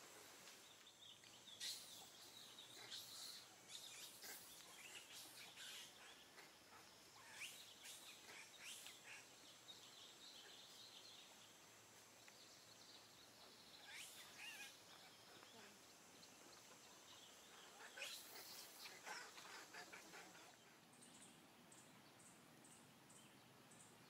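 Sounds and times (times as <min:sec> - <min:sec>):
faint outdoor background: 0:00.0 - 0:24.0
high bird chirps: 0:13.8 - 0:14.8.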